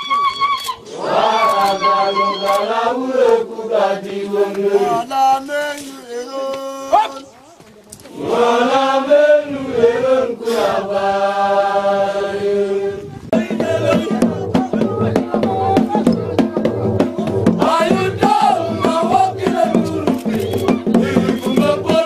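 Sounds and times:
men chanting in long notes: 8.2 - 16.3, 17.2 - 22.0.

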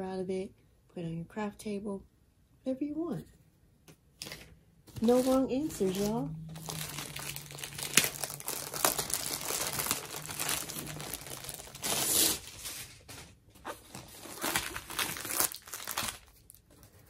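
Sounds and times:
plastic packaging crinkling: 4.2 - 17.0.

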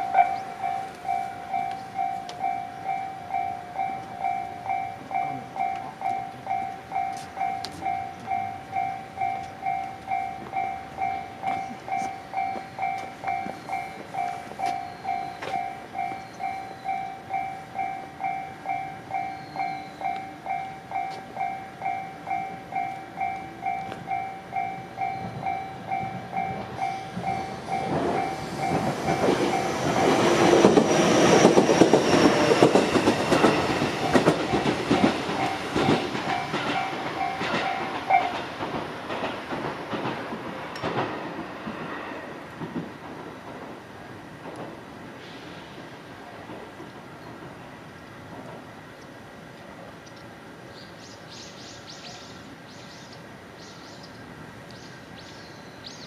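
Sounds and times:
level-crossing warning bell: 0.0 - 41.4
electric train passing: 0.0 - 56.0.

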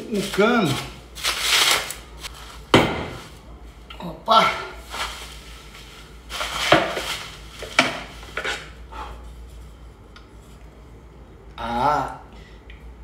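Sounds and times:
bubble wrap rustling: 0.0 - 3.8, 4.8 - 8.8.

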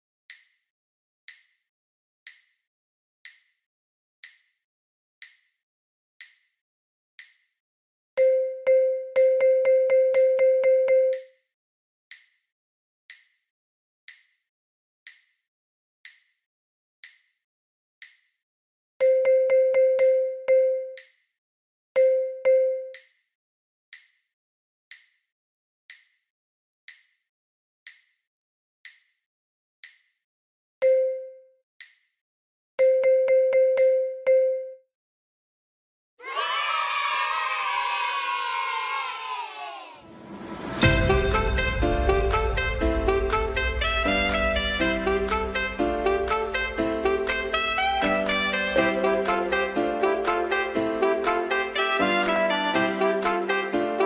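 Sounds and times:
wood-block metronome clicks: 0.3 - 0.6, 1.3 - 2.6, 3.2 - 3.6, 4.2 - 4.6, 5.2 - 5.6, 6.2 - 6.6, 7.2 - 7.6, 8.2 - 11.4, 12.1 - 12.5, 13.1 - 13.4, 14.1 - 14.4, 15.0 - 15.4, 16.0 - 16.4, 17.0 - 17.4, 18.0 - 18.4, 19.0 - 21.3, 22.0 - 23.3, 23.9 - 24.3, 24.9 - 25.3, 25.9 - 26.3, 26.9 - 29.2, 29.8 - 30.2, 30.8 - 32.2, 32.8 - 34.8, 45.2 - 52.6
metronome clicking: 1.3 - 1.6, 4.2 - 4.5, 5.2 - 5.5, 6.2 - 6.5, 7.2 - 7.4, 8.2 - 11.3, 14.1 - 14.3, 17.0 - 17.3, 19.0 - 21.2, 22.0 - 23.2, 24.9 - 25.2, 26.9 - 27.2, 27.8 - 28.2, 28.8 - 29.1, 29.8 - 30.1
pitched note: 40.8 - 53.7.

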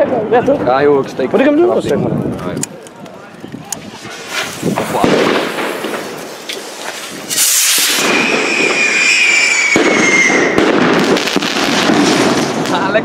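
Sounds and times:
firework crackle: 2.2 - 13.0
sharp crack: 2.3 - 13.0
rocket launch rush: 3.8 - 12.7
falling whistling tone: 7.3 - 10.6.

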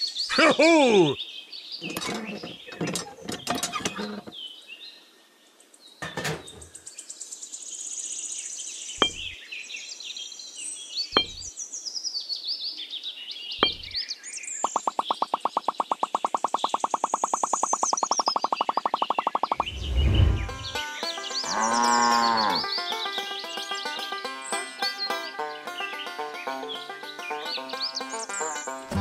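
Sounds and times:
birds chirping: 0.0 - 7.7, 8.4 - 29.0
clay bricks tapping down: 11.2 - 11.5, 13.6 - 14.0.

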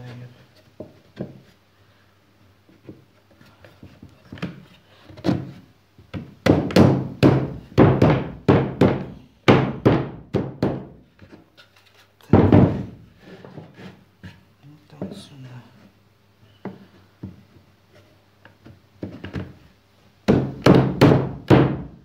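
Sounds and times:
plywood parts knocking together: 12.3 - 13.0.

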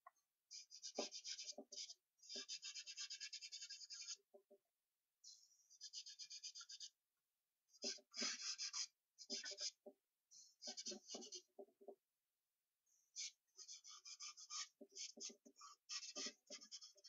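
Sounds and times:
charcoal scratching on paper: 0.5 - 4.2, 5.7 - 7.0, 7.8 - 9.8, 10.6 - 11.6, 13.2 - 17.0.

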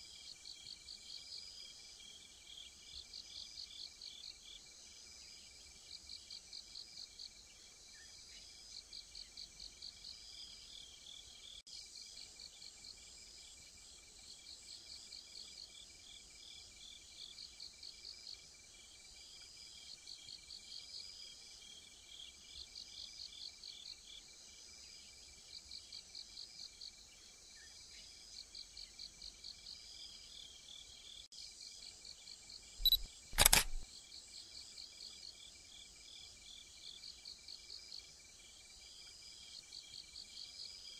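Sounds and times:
sharp clicks: 32.8 - 33.8.

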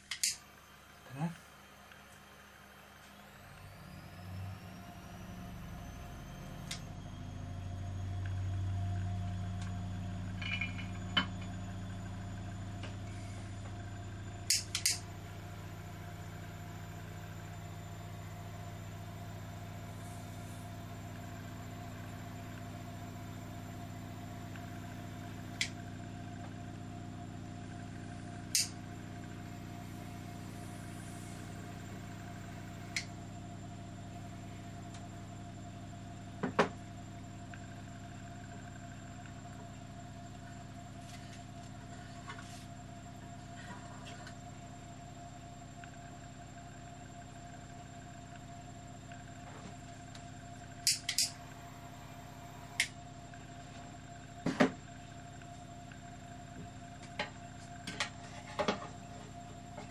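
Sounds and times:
sharp clicks: 0.0 - 0.4.

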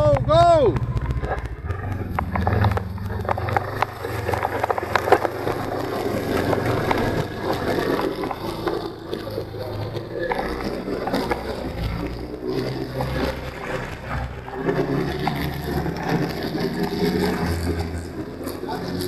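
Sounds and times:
snowmobile engine droning: 0.0 - 19.0.

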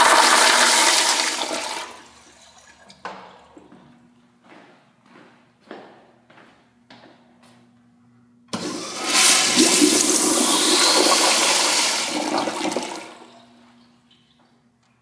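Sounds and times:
toilet flushing: 0.0 - 3.0, 8.5 - 13.7.

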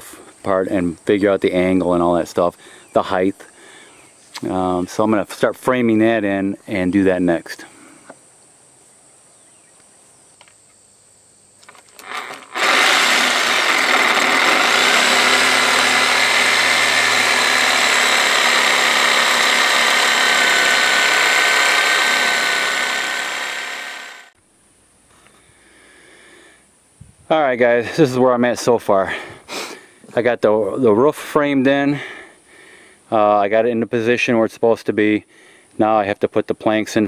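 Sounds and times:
electric drill drilling into wood: 11.7 - 24.4.

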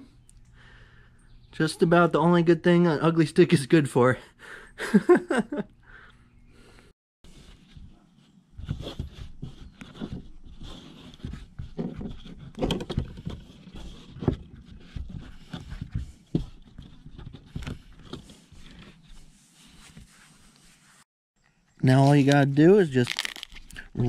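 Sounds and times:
cloth rustling: 17.9 - 21.1.

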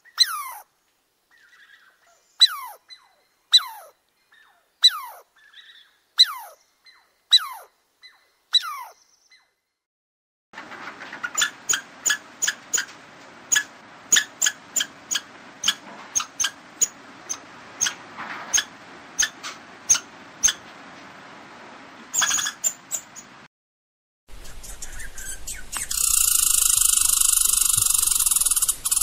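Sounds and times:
squirrel chattering calls: 0.0 - 0.6, 2.4 - 9.0, 11.4 - 12.9, 13.5 - 20.6, 22.2 - 23.3, 24.3 - 29.0.

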